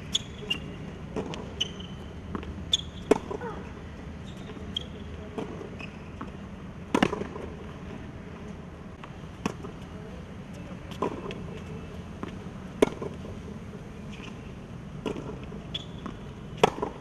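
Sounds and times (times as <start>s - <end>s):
tennis ball struck by racquets: 0.5s - 3.7s, 5.3s - 7.6s, 12.2s - 13.3s, 15.0s - 17.0s.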